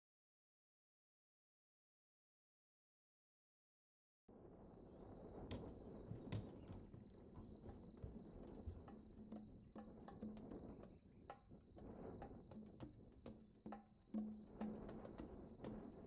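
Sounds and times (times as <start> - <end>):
crickets chirring: 4.4 - 16.0
hooves knocking on trailer ramp: 5.4 - 9.1.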